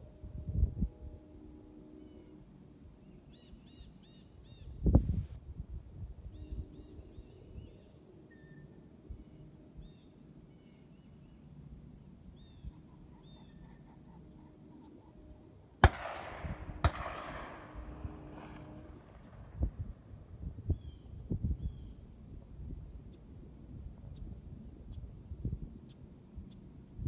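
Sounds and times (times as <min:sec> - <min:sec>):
insects buzzing: 0:00.0 - 0:27.0
bird chirps: 0:12.4 - 0:15.1
shotgun shots echoing: 0:15.8 - 0:19.6.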